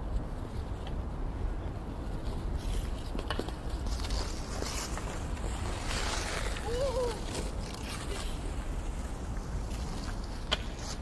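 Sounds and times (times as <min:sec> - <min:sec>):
hockey sticks and puck clacking: 0:09.8 - 0:11.0.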